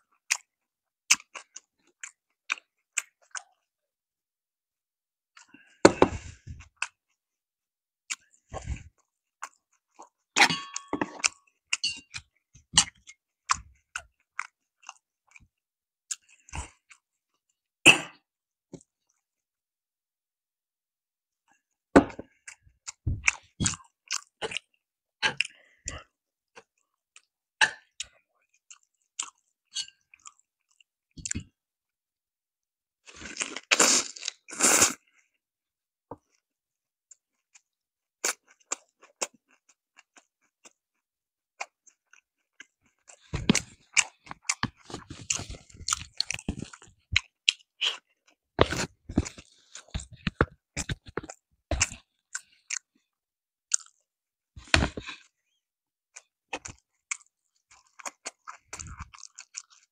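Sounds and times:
crunchy chewing: 41.6s - 53.0s, 53.7s - 54.0s, 56.2s - 59.9s.

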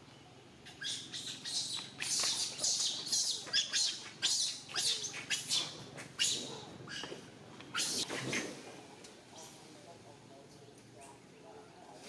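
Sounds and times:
high-pitched animal chirps: 0.7s - 7.0s.

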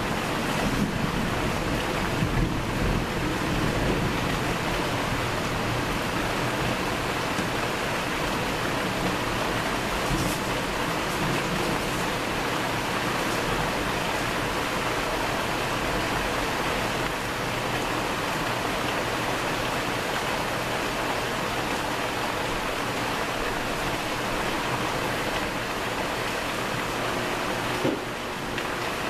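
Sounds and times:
heavy rain falling: 0.0s - 29.0s.

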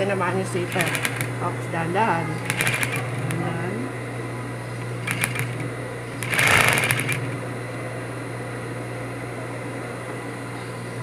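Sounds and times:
low motor hum: 0.0s - 11.0s
sewing machine stitching: 0.7s - 1.4s, 2.4s - 3.5s, 5.0s - 7.4s.

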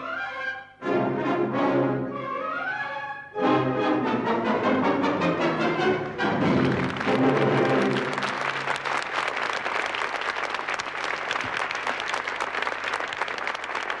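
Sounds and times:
studio audience applauding: 6.5s - 14.0s.

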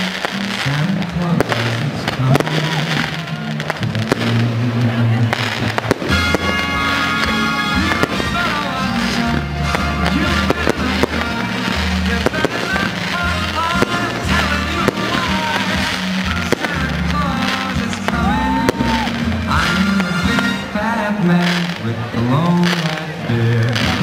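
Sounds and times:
fireworks bangs and crackling: 0.0s - 24.0s
music with bass beat: 0.0s - 24.0s.

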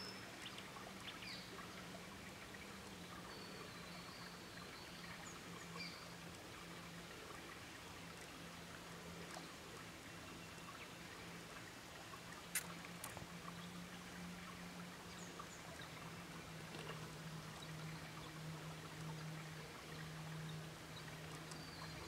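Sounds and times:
low steady hum: 0.0s - 22.0s
stream trickling over rocks: 0.0s - 22.0s
sharp click: 12.5s - 13.2s.

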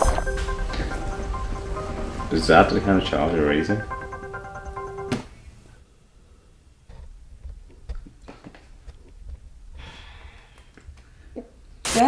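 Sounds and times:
low hum: 0.0s - 5.1s
soft breath: 9.7s - 11.4s.

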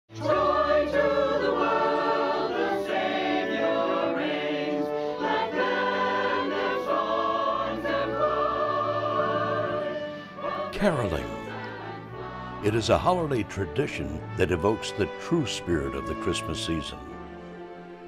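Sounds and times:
choir singing in harmony: 0.1s - 14.0s.

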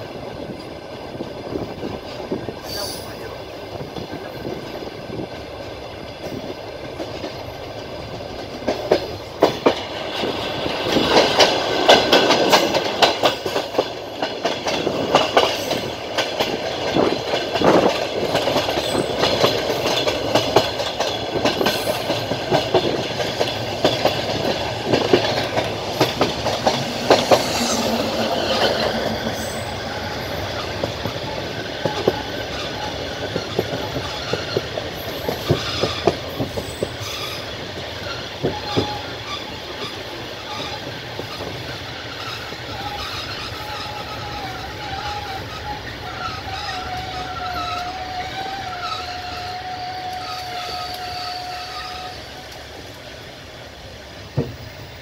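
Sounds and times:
train wheels clacking over rail joints: 0.0s - 53.2s, 54.2s - 55.0s
train rolling rumble: 0.0s - 55.0s.

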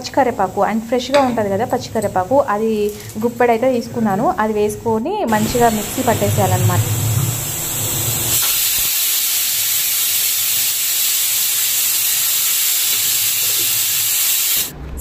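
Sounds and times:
pressure cooker hissing steam: 5.3s - 14.7s.

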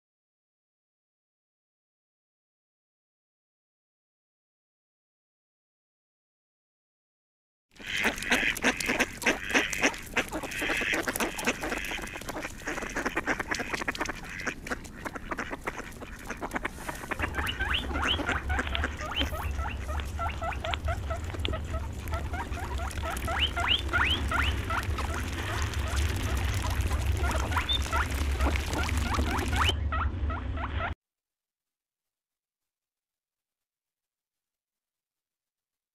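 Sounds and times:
ducks quacking: 7.8s - 31.0s
steady low rumble: 8.8s - 31.0s.

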